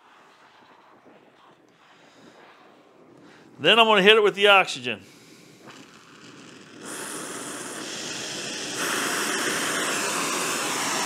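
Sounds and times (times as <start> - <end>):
torch flame hissing: 5.0 - 11.0.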